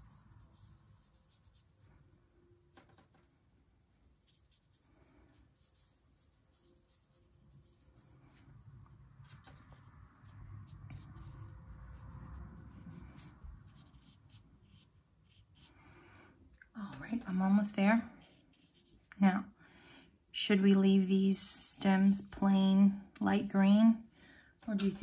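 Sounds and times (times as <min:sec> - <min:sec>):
soft rubbing of paintbrush on paper: 0:00.0 - 0:02.1, 0:03.9 - 0:15.8, 0:17.9 - 0:19.2.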